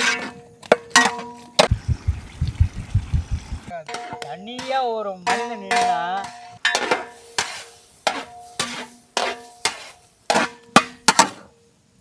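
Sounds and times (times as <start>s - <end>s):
wooden spatula knocking metal pan: 3.8s - 7.1s.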